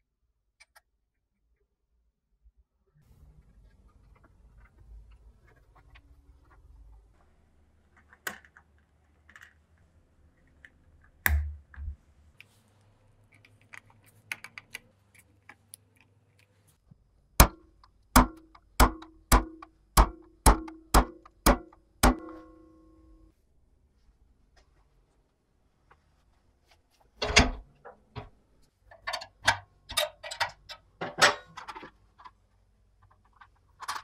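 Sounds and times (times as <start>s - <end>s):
hammer tapping metal punch: 17.4s - 23.3s.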